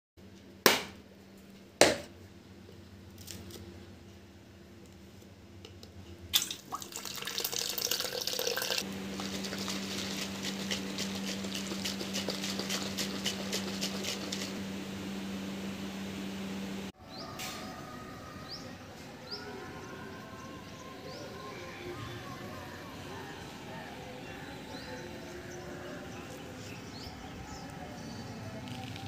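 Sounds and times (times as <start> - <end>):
water pouring into plastic bottle: 6.4 - 14.4.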